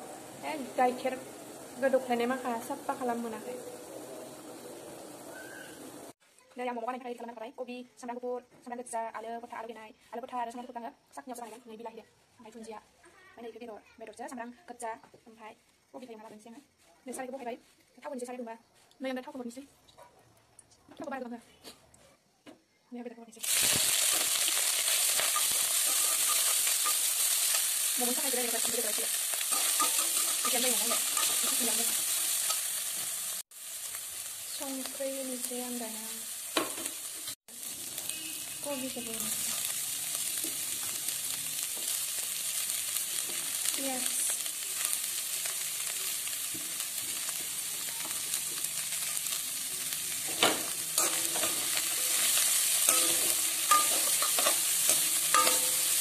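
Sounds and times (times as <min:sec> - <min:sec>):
food sizzling in oil in a wok: 0:00.1 - 0:06.2, 0:23.3 - 0:56.0
metal spatula scraping a wok: 0:23.5 - 0:27.7, 0:28.6 - 0:33.3, 0:50.1 - 0:56.0.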